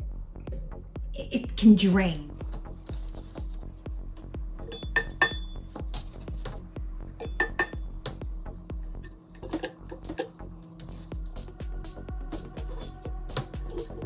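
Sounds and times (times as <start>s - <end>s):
background music with steady beat: 0.0s - 14.0s
glass marbles clinking: 4.6s - 5.5s.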